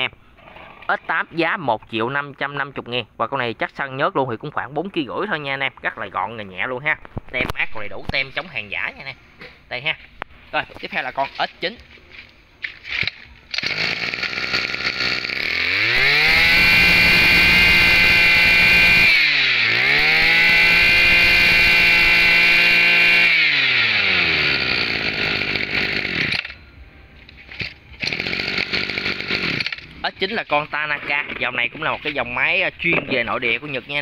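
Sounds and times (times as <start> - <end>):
brush cutter engine revving: 7.4 - 9.1, 12.7 - 26.6, 27.4 - 33.6.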